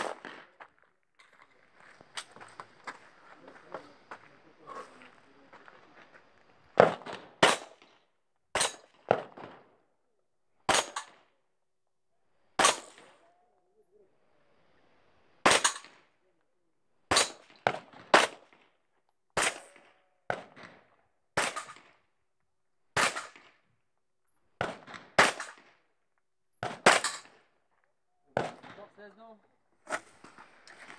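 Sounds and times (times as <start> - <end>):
shotgun shots: 0.0 - 0.5, 6.8 - 7.9, 10.7 - 11.2, 12.6 - 13.1, 15.4 - 16.0, 17.1 - 18.5, 19.4 - 20.8, 21.4 - 21.9, 23.0 - 23.5, 24.6 - 25.7, 26.6 - 27.4, 28.4 - 28.9.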